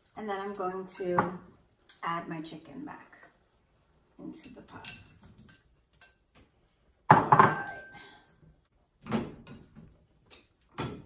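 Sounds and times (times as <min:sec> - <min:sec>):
metal cookware clattering: 0:04.3 - 0:06.2, 0:07.1 - 0:08.1.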